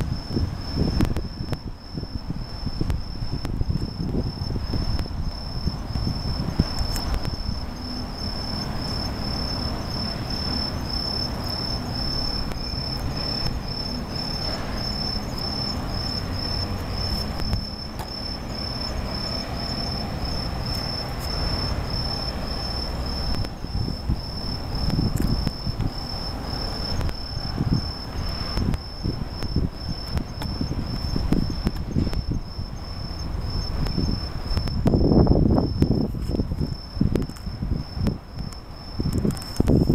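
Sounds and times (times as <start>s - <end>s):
low rumble: 0.0s - 38.3s
crickets chirping: 0.0s - 39.9s.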